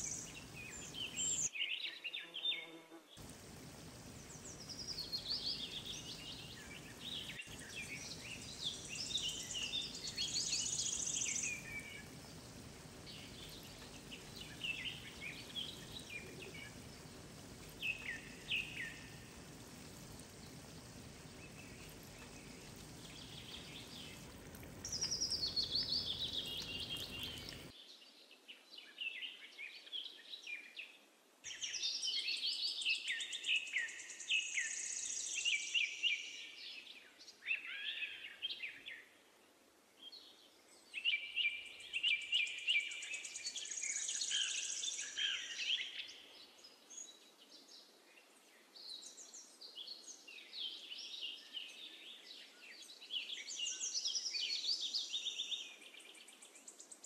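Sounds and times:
food deep-frying in hot oil: 0.0s - 1.5s, 3.2s - 27.7s
oil crackling and popping: 3.2s - 27.7s.

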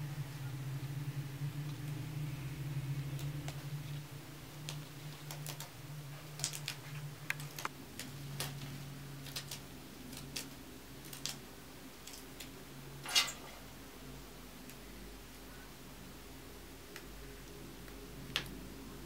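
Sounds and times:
faint low hum: 0.0s - 19.0s
green beans snapping: 6.4s - 8.6s, 9.2s - 11.4s.

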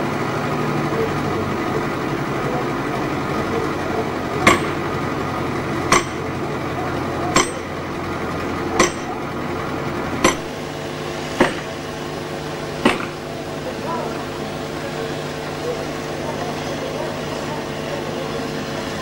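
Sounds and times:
axe chopping into tree trunk: 11.4s - 11.7s.

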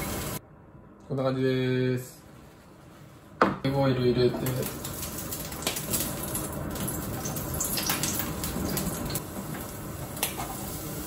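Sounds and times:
oil sizzling in a frying pan: 0.0s - 0.4s, 4.2s - 11.0s.

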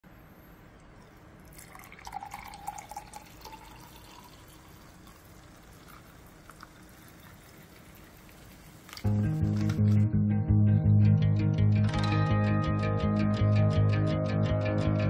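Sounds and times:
water pouring into a glass: 1.0s - 9.1s
bubbles fizzing: 1.3s - 9.9s.

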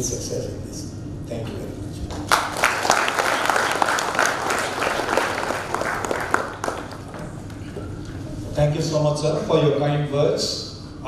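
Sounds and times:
audience applause: 2.1s - 7.3s.

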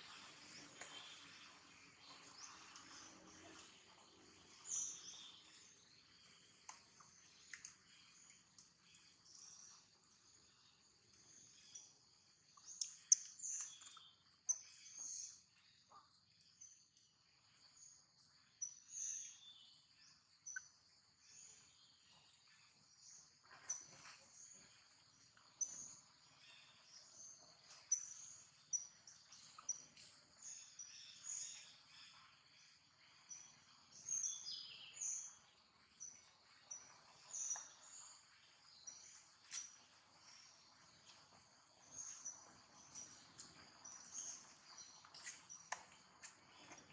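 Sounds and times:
insect drone: 16.4s - 46.9s
birds chirping: 18.5s - 46.9s.

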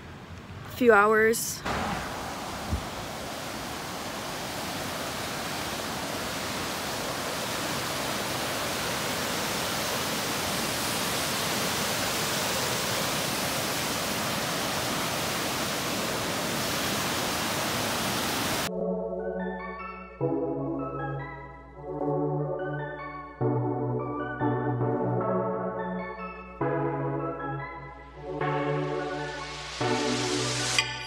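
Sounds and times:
waterfall rushing: 1.6s - 18.7s.

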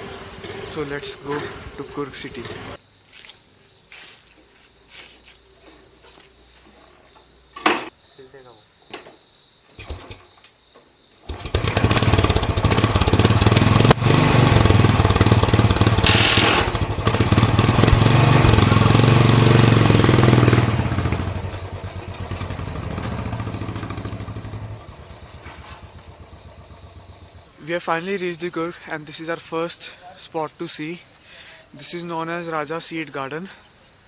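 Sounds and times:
motorcycle engine running: 0.0s - 2.8s, 11.3s - 27.6s.

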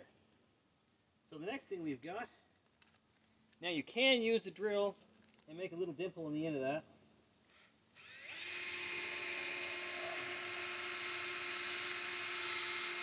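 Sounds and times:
cordless drill whining: 8.0s - 13.0s.

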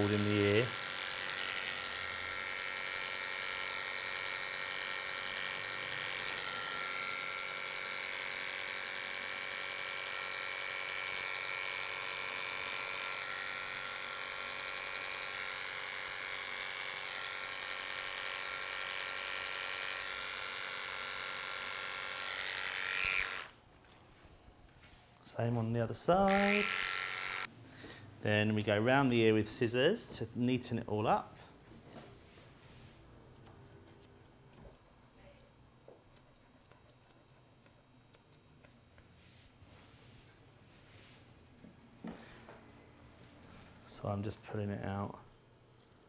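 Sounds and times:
electric clippers buzzing: 0.0s - 23.6s, 26.2s - 27.5s.

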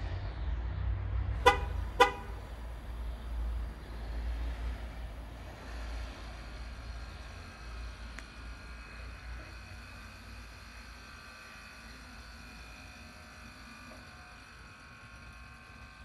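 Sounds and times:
low steady rumble: 0.0s - 16.0s
truck horn chirps: 1.4s - 2.6s.

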